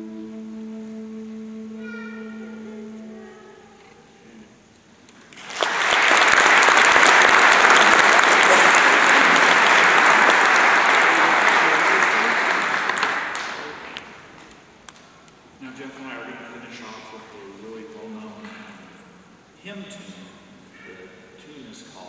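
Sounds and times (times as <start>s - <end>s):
audience applauding: 5.2s - 14.5s.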